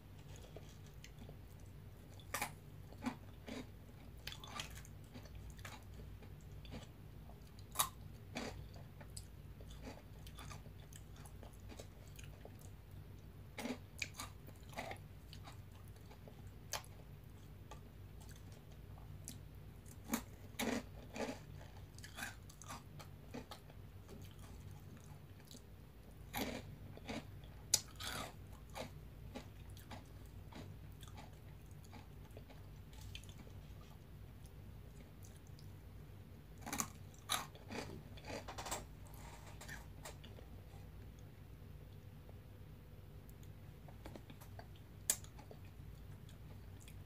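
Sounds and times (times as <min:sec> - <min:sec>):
steady low hum: 0:00.0 - 0:47.0
crunchy snack chewing: 0:00.2 - 0:12.8, 0:13.6 - 0:17.0, 0:17.7 - 0:34.0, 0:36.6 - 0:40.4.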